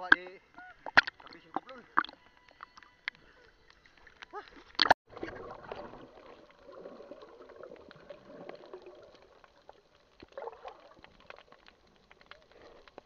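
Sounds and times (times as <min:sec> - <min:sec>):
muffled underwater gurgling: 0:04.3 - 0:12.8
bubbling swirl: 0:05.1 - 0:12.6.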